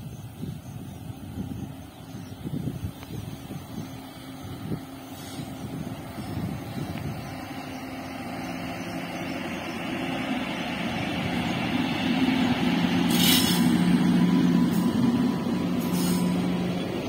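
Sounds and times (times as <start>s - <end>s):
electric locomotive hum: 0.0s - 17.0s
wheels rumbling on rails: 0.0s - 17.0s
short hiss: 5.1s - 5.6s, 13.0s - 14.0s, 15.8s - 16.6s.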